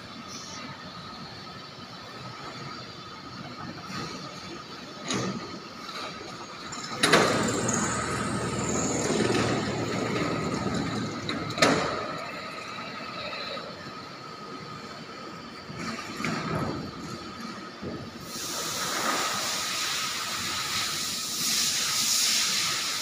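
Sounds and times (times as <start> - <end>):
loud machine noise: 0.0 - 23.0
machine high whine: 0.0 - 23.0.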